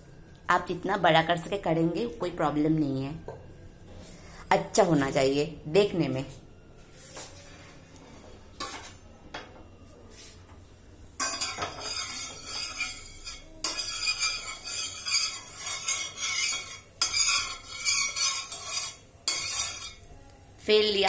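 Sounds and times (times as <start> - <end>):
metal spatula scraping griddle: 11.2 - 20.0.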